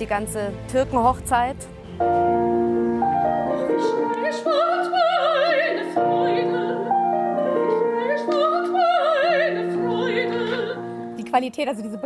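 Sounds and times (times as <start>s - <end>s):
sustained chord accompaniment: 0.0s - 12.0s
woman singing opera: 3.5s - 12.0s.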